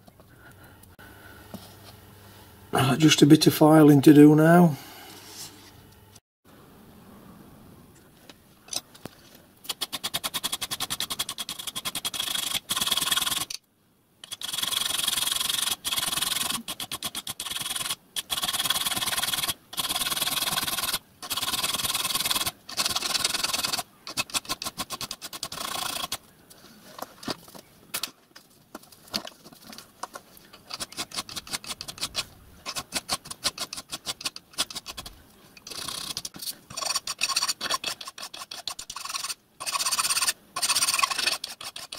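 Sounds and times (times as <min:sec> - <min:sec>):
file rasping on brass: 0:30.7 - 0:41.9.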